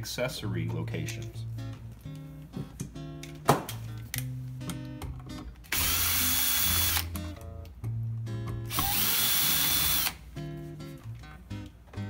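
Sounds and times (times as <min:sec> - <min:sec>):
acoustic guitar music: 0:00.0 - 0:05.7, 0:07.0 - 0:08.7, 0:10.2 - 0:12.0
cordless drill motor whine: 0:05.7 - 0:07.1, 0:08.7 - 0:10.2.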